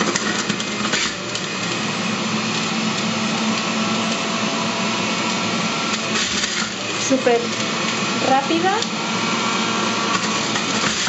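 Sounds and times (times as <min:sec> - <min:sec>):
juicer motor humming: 0:00.0 - 0:11.0.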